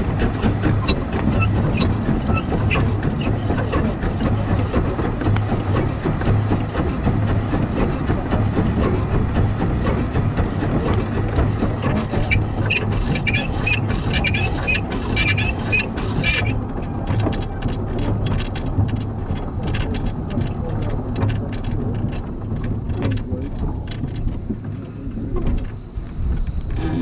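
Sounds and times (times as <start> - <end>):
steam locomotive pulsing beat: 0.0 - 24.7
wheels clicking on track: 0.0 - 27.0.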